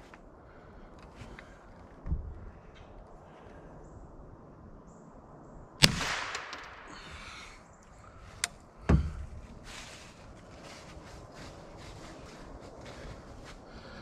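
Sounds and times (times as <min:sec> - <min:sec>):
rifle shot: 0:05.8 - 0:06.9.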